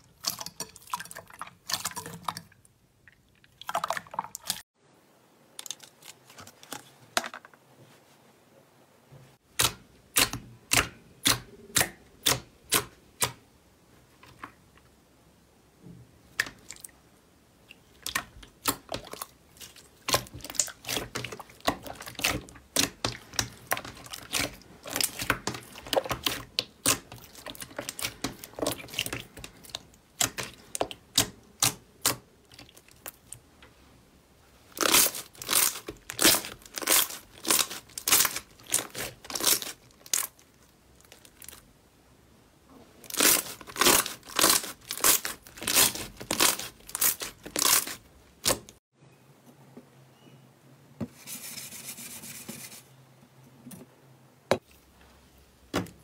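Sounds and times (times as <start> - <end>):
hands kneading slime: 17.8 - 33.8, 34.5 - 41.6, 42.9 - 48.8.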